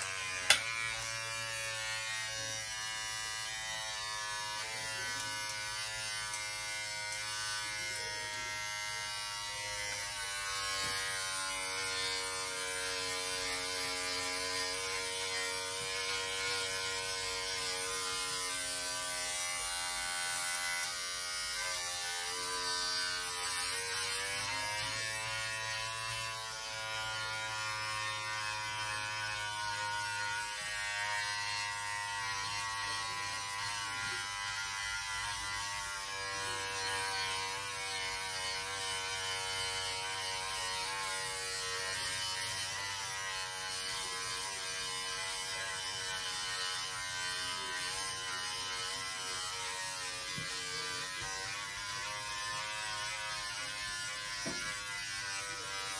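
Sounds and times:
electric shaver buzzing: 0.0 - 55.9.

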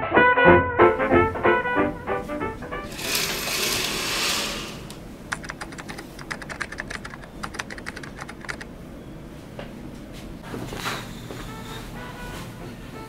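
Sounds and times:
short hissing rush: 2.9 - 4.9
keyboard typing clicks: 5.3 - 8.7.

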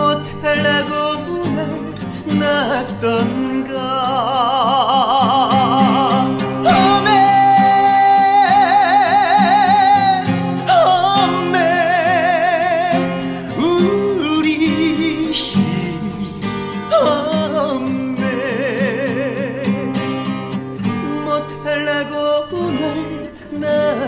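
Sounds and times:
acoustic guitar: 0.0 - 24.0
man singing ballad with vibrato: 0.0 - 24.0.

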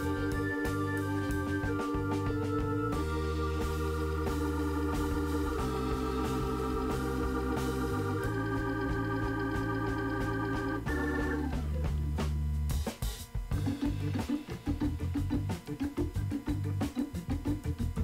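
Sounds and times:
sustained chords: 0.0 - 12.2
steady bass: 0.0 - 18.0.

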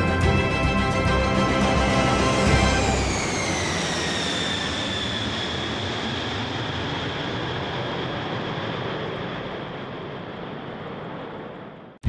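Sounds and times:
jet engine whine: 0.0 - 12.0
jet noise rushing: 0.8 - 4.9.

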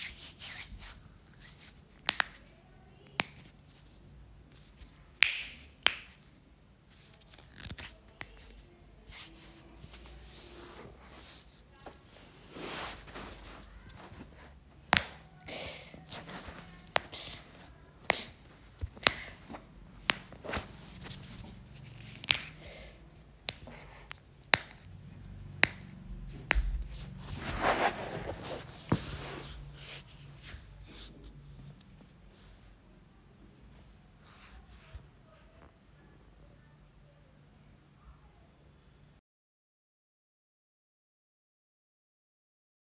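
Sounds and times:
hands slapping during massage: 5.2 - 6.3, 14.9 - 15.3, 16.2 - 22.7, 23.4 - 24.9, 25.6 - 29.0
hands rubbing over cloth and hair: 9.1 - 15.1, 16.0 - 22.6, 26.5 - 31.4.

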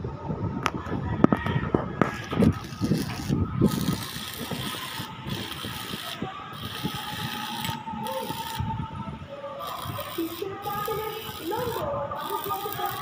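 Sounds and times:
arc welding crackling hiss: 2.4 - 8.7, 9.6 - 13.0.

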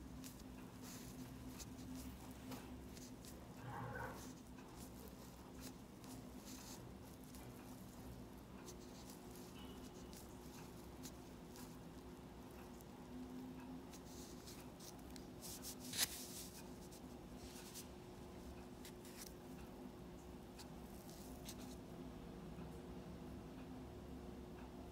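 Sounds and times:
faint steady hum: 0.0 - 24.9
pen scratching on paper: 0.2 - 11.8.

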